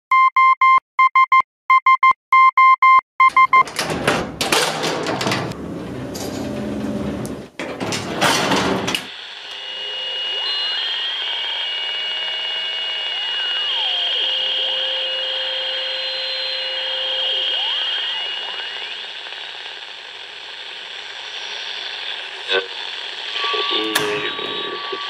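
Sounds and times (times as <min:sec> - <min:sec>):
morse code beeping: 0:00.1 - 0:03.7
high electronic gliding tones: 0:09.1 - 0:19.0.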